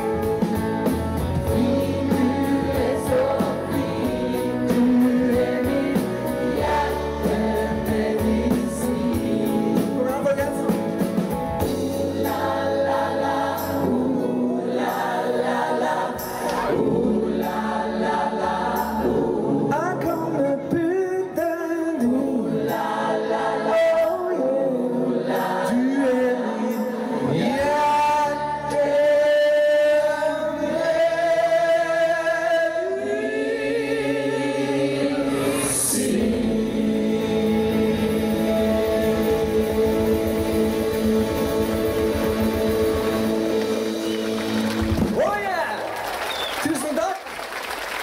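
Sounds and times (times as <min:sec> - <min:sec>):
mixed choir singing: 0:00.0 - 0:10.2, 0:11.2 - 0:44.8
live band playing: 0:00.0 - 0:18.0, 0:35.0 - 0:46.8.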